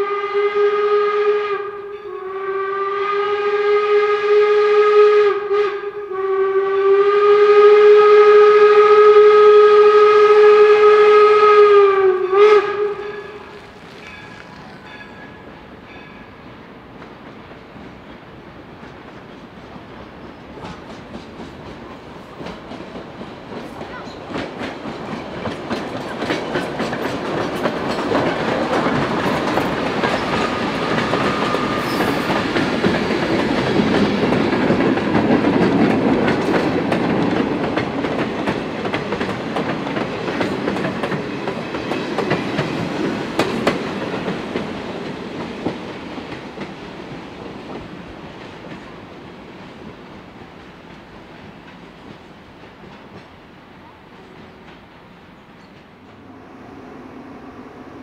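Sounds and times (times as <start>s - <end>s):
train passing: 0.0s - 58.0s
wheels clicking over rail joints: 18.8s - 48.9s.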